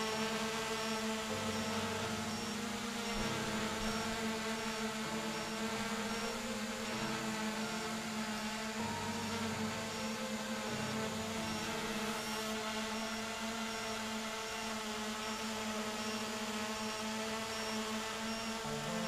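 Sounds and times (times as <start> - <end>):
quadcopter motors humming: 0.0 - 19.0
faint high beep: 0.8 - 14.0.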